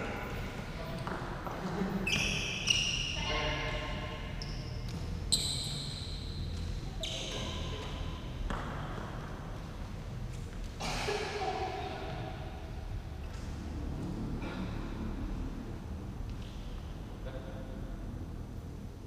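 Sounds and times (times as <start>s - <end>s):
shoes squeaking on court floor: 1.0s - 3.2s, 4.4s - 8.8s.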